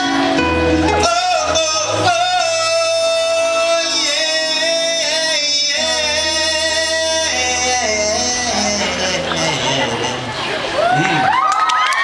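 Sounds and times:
musical accompaniment: 0:00.0 - 0:10.7
man singing into microphone: 0:00.0 - 0:11.2.

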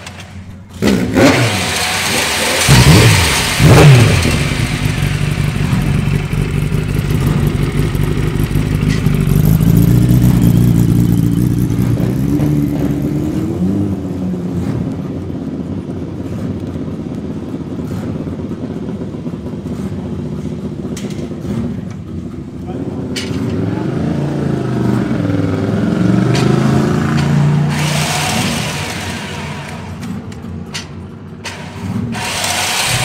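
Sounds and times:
motorcycle engines revving: 0:00.0 - 0:33.0
motorcycle engine idling: 0:01.7 - 0:12.3, 0:14.8 - 0:25.8.

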